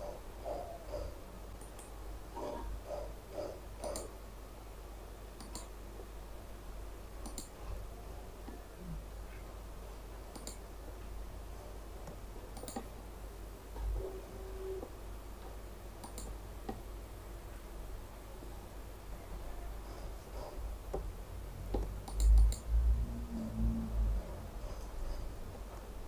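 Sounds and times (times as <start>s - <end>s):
low steady hum: 0.0s - 26.0s
mouse button clicking: 16.0s - 16.3s.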